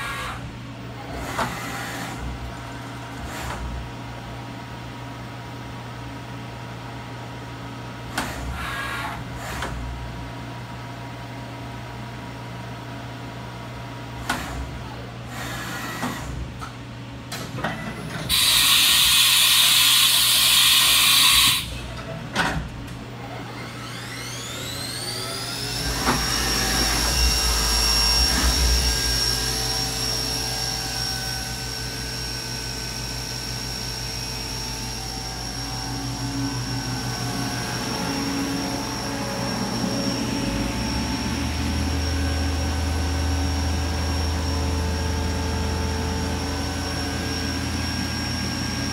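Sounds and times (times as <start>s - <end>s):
loud air hiss: 18.3s - 21.8s
electrical hum: 21.7s - 48.9s
spindle motor whine: 23.0s - 48.9s.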